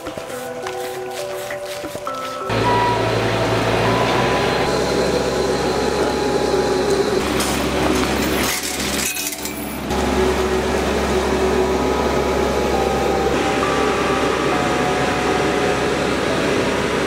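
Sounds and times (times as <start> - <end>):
diesel engine hum: 0.0 - 17.0
metallic clanks and rattles: 7.3 - 9.9.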